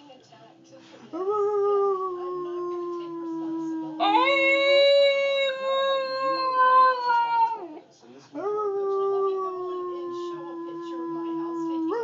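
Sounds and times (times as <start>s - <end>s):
husky howling: 1.7s - 7.8s.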